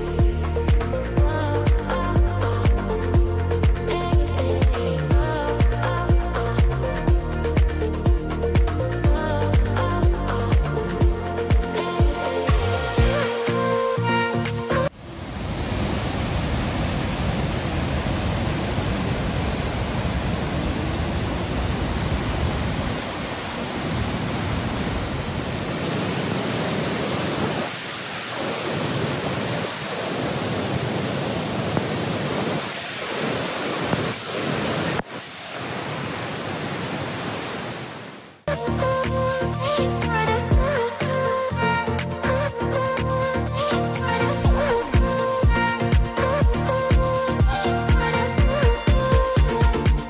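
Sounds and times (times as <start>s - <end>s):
waterfall rushing: 11.3s - 39.0s.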